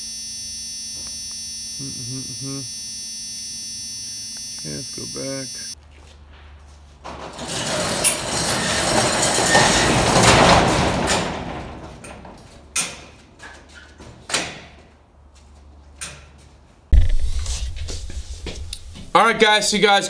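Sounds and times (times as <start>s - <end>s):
roll-up door rattling rumble: 7.0s - 12.8s
metal door clanks: 7.0s - 13.2s.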